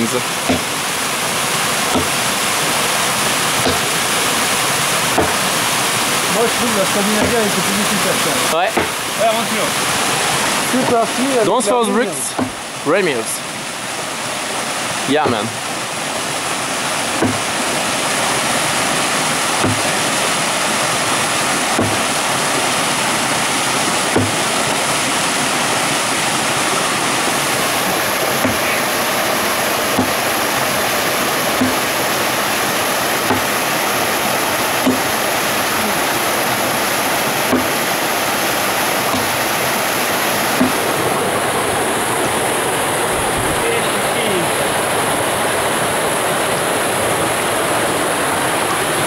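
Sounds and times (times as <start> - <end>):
waterfall rushing: 0.0 - 49.0
axe chopping log: 0.5 - 0.8, 1.9 - 2.3, 3.6 - 4.0, 5.1 - 5.5, 7.2 - 7.6, 8.7 - 9.0, 12.3 - 12.6, 17.2 - 17.6, 19.6 - 20.0, 21.7 - 22.2, 24.1 - 24.6, 28.4 - 28.8, 29.9 - 30.3, 31.6 - 31.9, 33.2 - 33.6, 34.8 - 35.1, 37.4 - 37.9, 39.1 - 39.5, 40.5 - 40.9.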